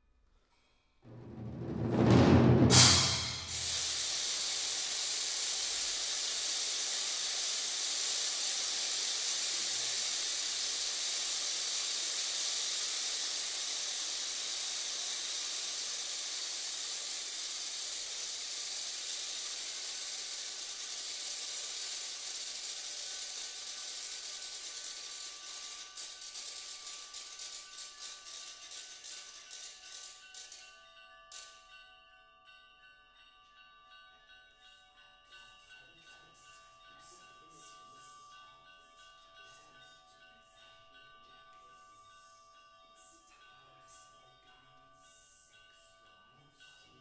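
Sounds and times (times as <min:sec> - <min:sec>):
drum swell with a hit: 0:01.1 - 0:04.5
steady high hiss: 0:02.7 - 0:30.0.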